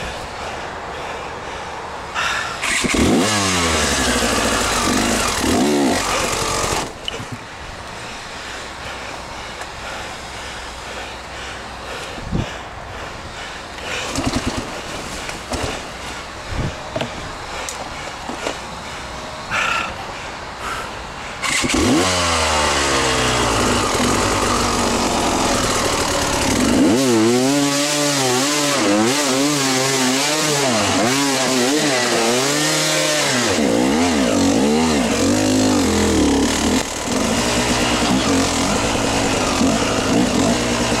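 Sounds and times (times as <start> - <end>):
dirt bike engine revving: 2.6 - 7.2, 14.1 - 14.9, 21.4 - 41.0.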